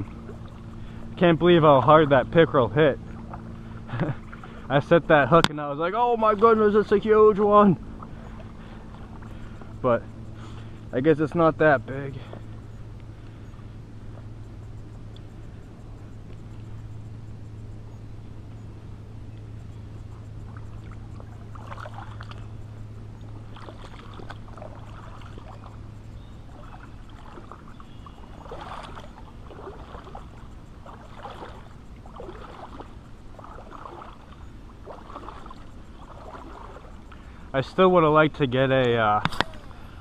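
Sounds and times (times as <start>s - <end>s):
water sloshing around wading legs: 0.0s - 17.1s, 19.6s - 39.8s
low steady hum: 0.0s - 40.0s.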